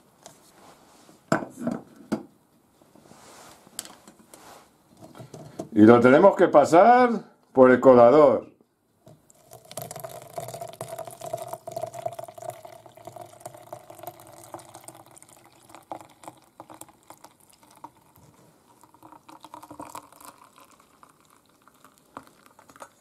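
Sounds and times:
liquid pouring through a strainer: 9.1 - 23.0.

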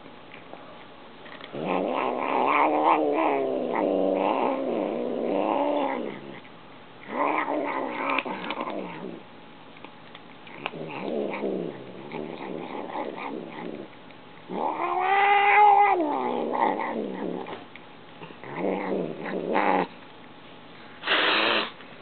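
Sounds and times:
cat growling and yowling: 1.5 - 6.4, 7.0 - 9.2, 10.5 - 13.9, 14.5 - 17.6, 18.4 - 19.9.

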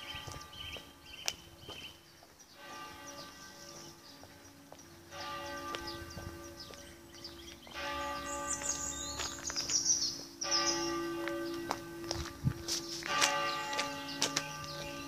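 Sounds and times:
church bells ringing: 0.0 - 1.2, 2.5 - 15.0
birds chirping: 0.0 - 15.0.

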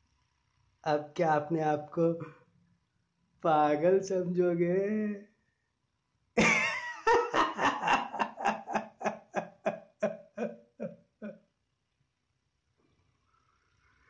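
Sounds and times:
man laughing: 6.4 - 10.9.

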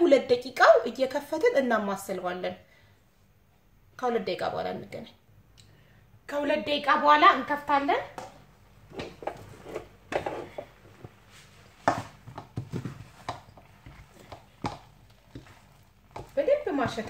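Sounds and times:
wooden spoon knocking in a pot: 11.9 - 17.0.

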